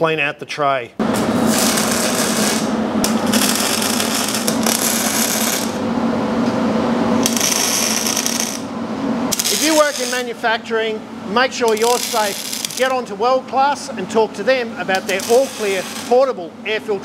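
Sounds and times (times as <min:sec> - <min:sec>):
steady hum: 0:00.6 - 0:17.0
welding arc crackling and sizzling: 0:01.0 - 0:05.8, 0:07.2 - 0:08.7, 0:09.3 - 0:10.4, 0:11.5 - 0:13.2, 0:14.9 - 0:16.4.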